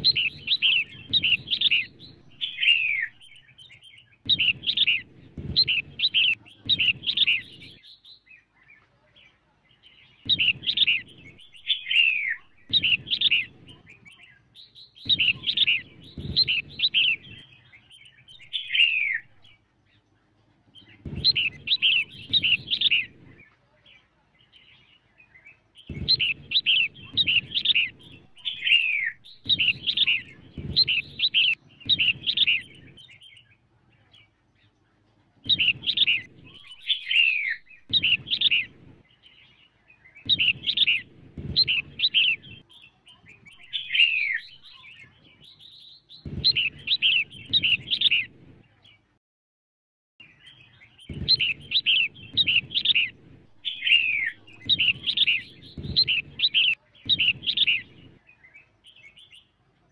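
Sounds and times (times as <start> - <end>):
bird chirping calls: 0.0 - 49.1, 50.2 - 59.6.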